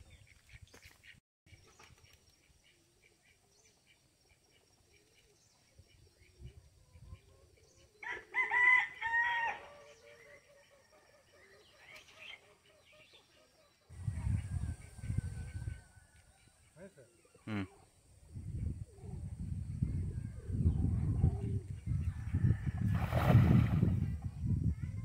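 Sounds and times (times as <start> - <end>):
rooster crowing: 8.0 - 9.7
faint bird chirps: 9.8 - 22.7.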